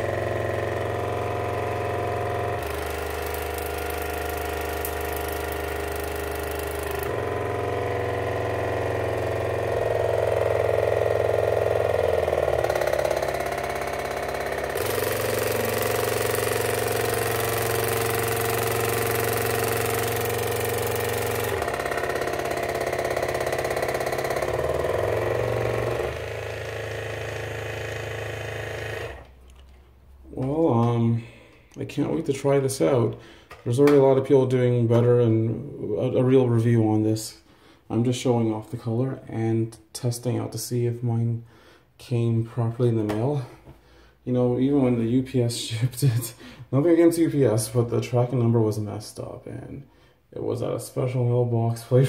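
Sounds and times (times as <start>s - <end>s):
water flosser pump hum: 0.0s - 34.2s.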